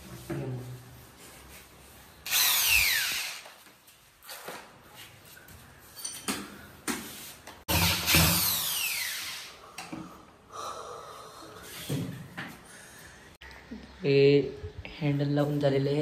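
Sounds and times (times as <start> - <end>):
electric drill: 2.3 - 3.6, 7.7 - 9.6.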